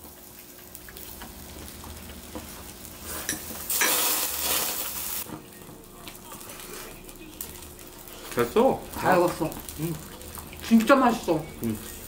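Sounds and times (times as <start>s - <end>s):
skewers sizzling on a hot pan: 0.0s - 12.0s.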